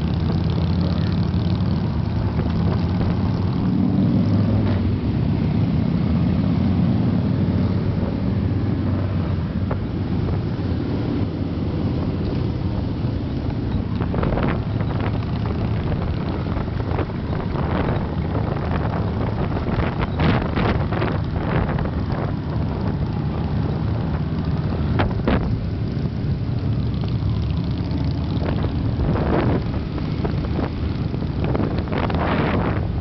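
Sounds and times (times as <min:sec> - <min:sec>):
motorcycle engine running: 0:00.0 - 0:03.8, 0:07.5 - 0:33.0
wind buffeting microphone: 0:07.8 - 0:27.0, 0:28.3 - 0:33.0.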